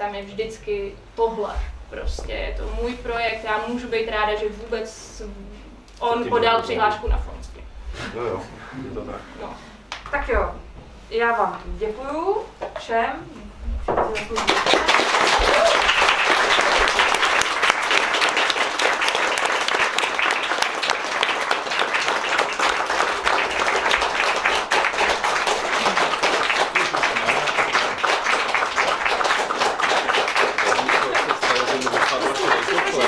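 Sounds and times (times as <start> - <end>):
audience applauding: 14.2 - 33.0.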